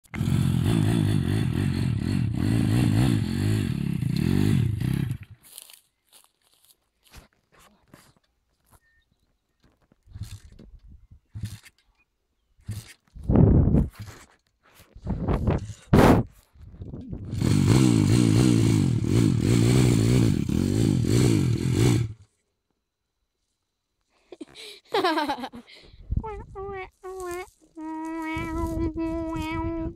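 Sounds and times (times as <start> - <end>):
motorbike engine revving: 0.0 - 5.4, 17.1 - 22.3.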